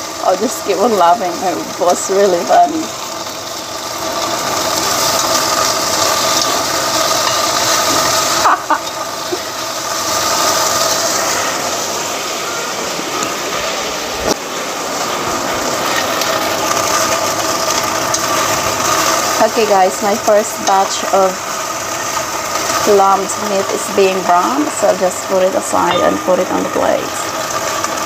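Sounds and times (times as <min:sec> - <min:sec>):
meat sizzling in a pot: 0:00.0 - 0:28.0
steady mechanical hum: 0:00.0 - 0:28.0
metal tongs clacking on pot: 0:06.3 - 0:08.0, 0:20.6 - 0:20.8.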